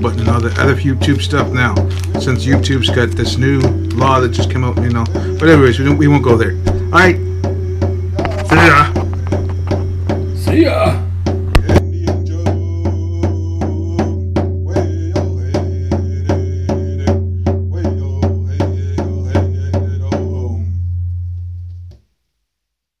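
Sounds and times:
held low bass note: 0:00.0 - 0:12.0
evenly spaced drum hits: 0:00.0 - 0:20.6.

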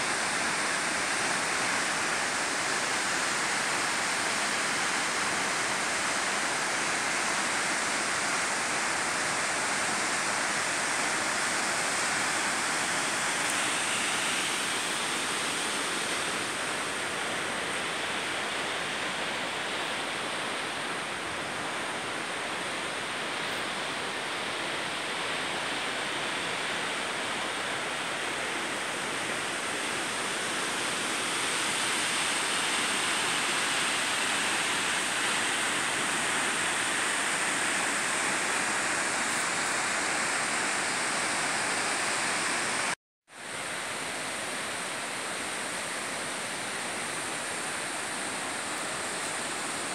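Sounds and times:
waterfall rushing: 0:00.0 - 0:43.0.

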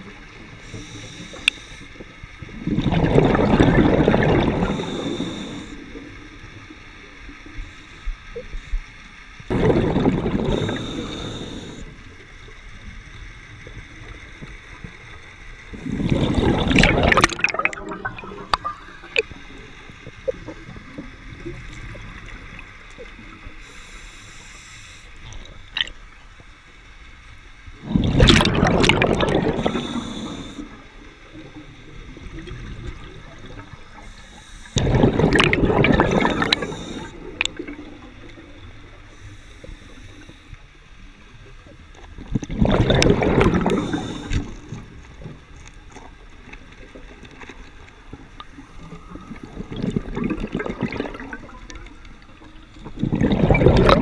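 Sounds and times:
exhaled bubbles underwater: 0:02.4 - 0:07.6, 0:09.5 - 0:23.6, 0:27.8 - 0:39.1, 0:42.0 - 0:47.3, 0:48.0 - 0:54.0.

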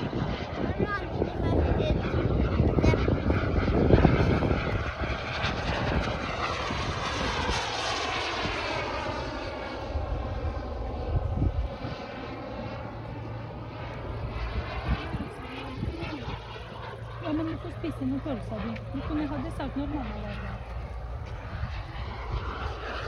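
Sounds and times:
low rumble: 0:00.0 - 0:23.0
model jet flying past: 0:00.0 - 0:23.0.

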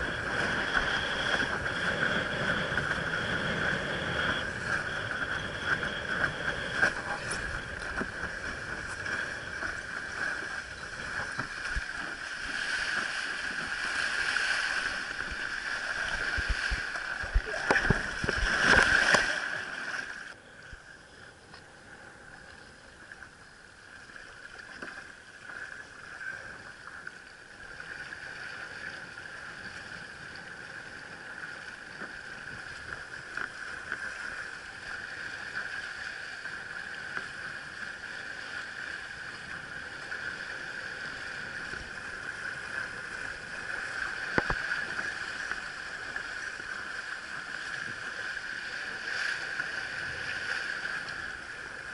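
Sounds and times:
sail splashing into water: 0:00.0 - 0:20.4
water rushing: 0:00.0 - 0:21.0, 0:31.7 - 0:51.9
wind: 0:00.0 - 0:51.9.

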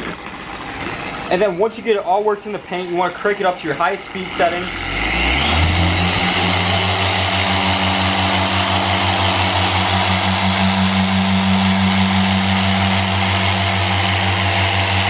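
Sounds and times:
polisher motor humming and pulsing: 0:03.2 - 0:15.0.

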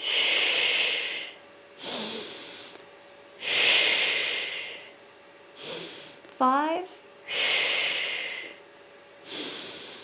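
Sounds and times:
woman breathing: 0:00.0 - 0:02.8, 0:03.4 - 0:05.0, 0:05.6 - 0:06.3, 0:07.2 - 0:08.6, 0:09.2 - 0:10.0.

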